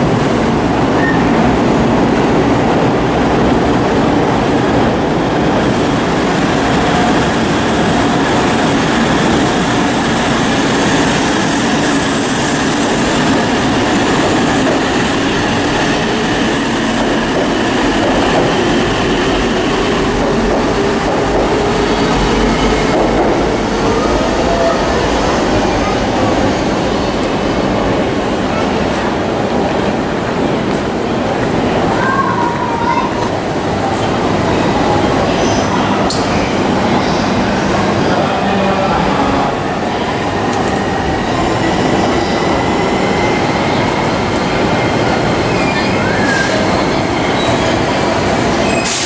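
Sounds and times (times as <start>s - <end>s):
wheels rumbling on rail: 0.0s - 49.0s.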